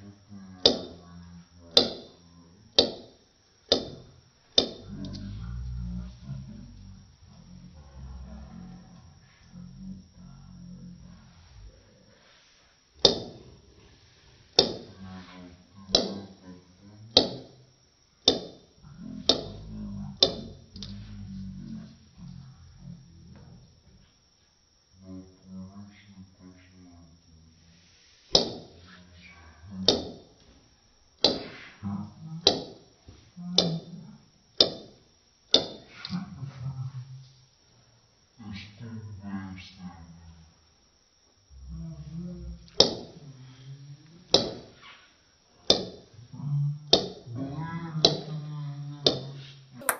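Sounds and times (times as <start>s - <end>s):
small ball bouncing on a desk: 0.6s - 1.0s, 1.7s - 2.2s, 2.8s - 4.9s, 13.0s - 13.4s, 14.6s - 14.9s, 15.9s - 16.3s, 17.1s - 17.6s, 18.2s - 18.7s, 19.3s - 19.6s, 20.2s - 20.5s, 28.3s - 28.7s, 29.8s - 30.3s, 31.2s - 31.6s, 32.4s - 32.8s, 34.6s - 35.9s, 42.8s - 43.1s, 44.3s - 44.7s, 45.6s - 46.0s, 46.9s - 47.2s, 49.1s - 49.9s.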